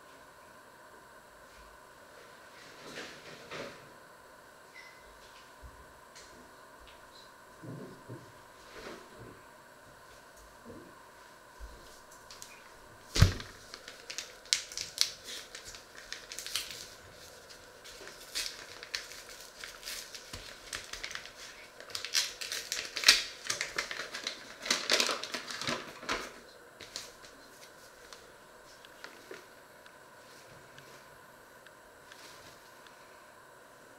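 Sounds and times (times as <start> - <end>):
paper packet crinkling: 13.1 - 29.5.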